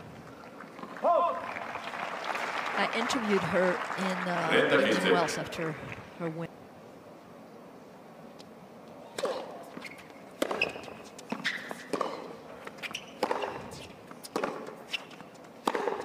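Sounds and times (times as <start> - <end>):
tennis ball hit with racket: 9.1 - 9.8, 10.4 - 16.0.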